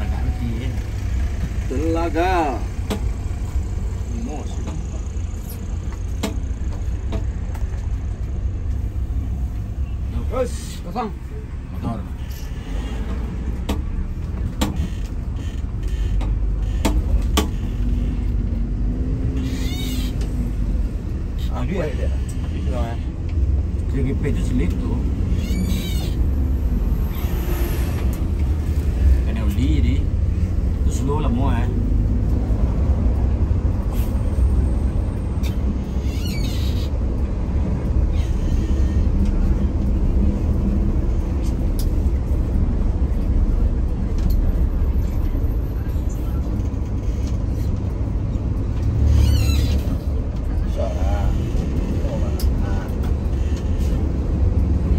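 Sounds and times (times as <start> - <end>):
bus engine rumble: 0.0 - 54.9
squeaks and rattles: 11.8 - 23.3, 24.6 - 29.1, 33.9 - 41.6, 44.2 - 54.4.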